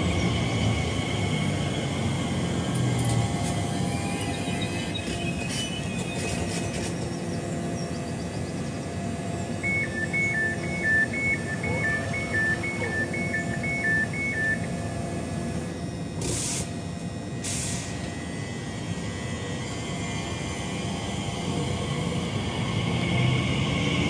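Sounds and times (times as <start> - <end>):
train equipment hum: 0.0 - 24.0
two-tone door warning beep: 9.6 - 14.7.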